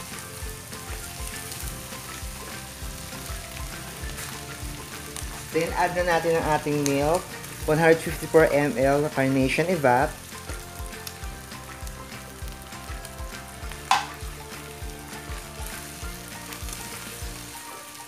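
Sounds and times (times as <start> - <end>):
food sizzling in a wok: 0.0 - 18.0
sharp knock: 13.9 - 14.1.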